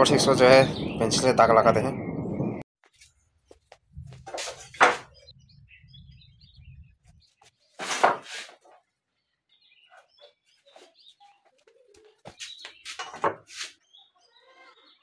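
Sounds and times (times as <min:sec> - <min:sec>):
birds chirping faintly: 0:00.0 - 0:15.0
wooden plank scraping clatter: 0:07.8 - 0:08.7.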